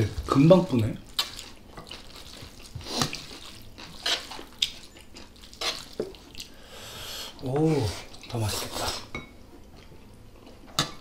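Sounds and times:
wet sticky noodle clicks: 1.1 - 2.1.

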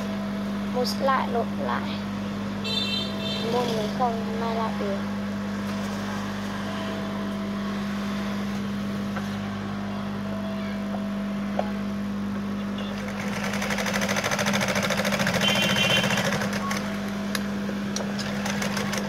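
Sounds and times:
sewing machine motor humming: 12.8 - 17.3, 17.9 - 19.0.

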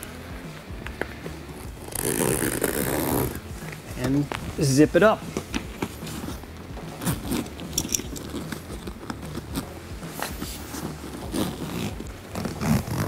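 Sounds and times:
zipper being pulled: 1.6 - 3.7, 5.4 - 13.0.

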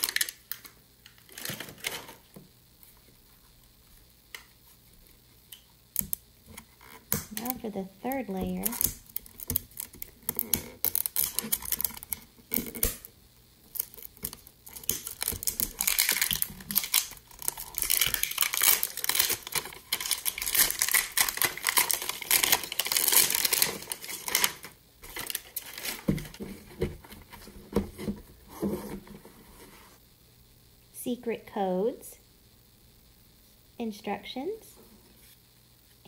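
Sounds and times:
paper wrapping crinkling and tearing: 0.0 - 0.6, 1.2 - 2.2, 7.3 - 13.0, 13.7 - 26.6.

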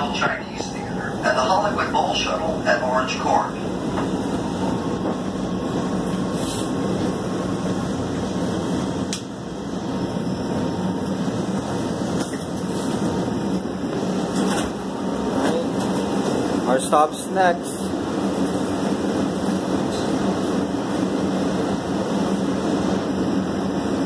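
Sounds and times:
low ventilation hum: 0.0 - 10.0
subway car rumble: 0.0 - 24.0.

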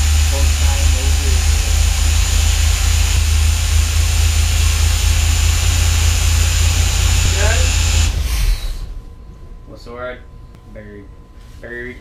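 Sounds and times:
boat engine idling: 0.0 - 8.3.

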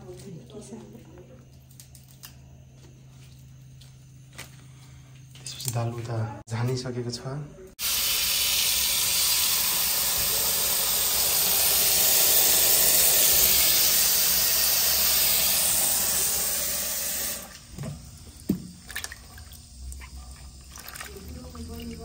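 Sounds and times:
hands washing leaves in water: 17.5 - 22.0.

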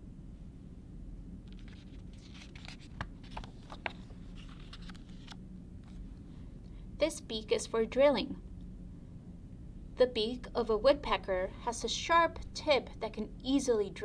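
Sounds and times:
page turning with paper rustling: 1.5 - 6.0.

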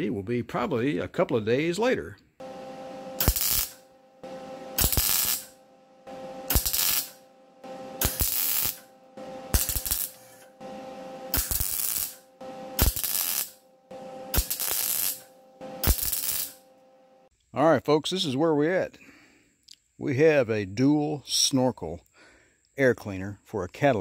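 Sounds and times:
welding arc bursts: 2.4 - 16.8
welder humming: 2.4 - 17.3.

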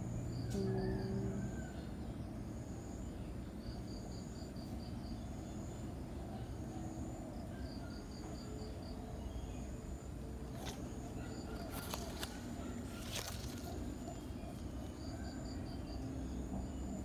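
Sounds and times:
insects chirping in pulses: 0.0 - 17.0
high drawn-out insect note: 0.4 - 1.7.

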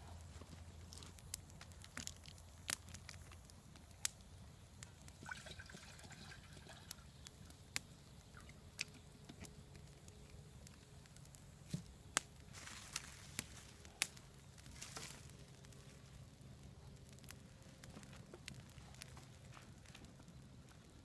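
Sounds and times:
campfire crackling: 0.0 - 21.0
fire popping: 0.0 - 21.0
water pouring into a pot: 5.2 - 7.0.

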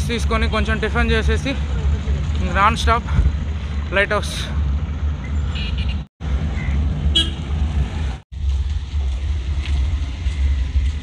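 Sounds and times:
road noise: 0.0 - 11.0
wind rumble on microphone: 4.6 - 11.0.

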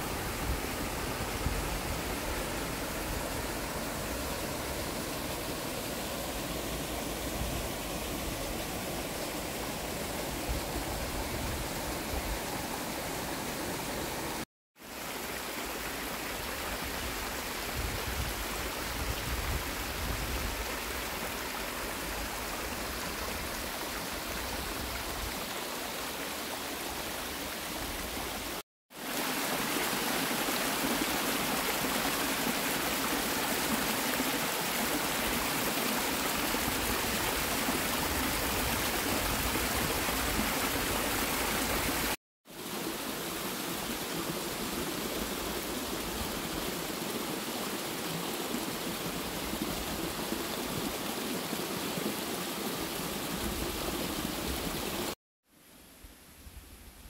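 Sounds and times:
waterfall rushing: 0.0 - 17.6, 29.0 - 55.2.

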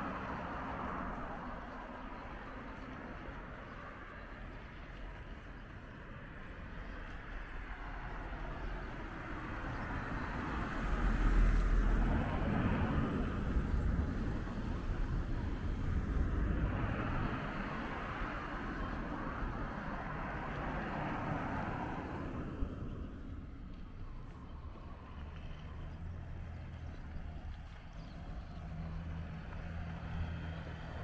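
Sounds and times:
car passing: 6.7 - 31.0.

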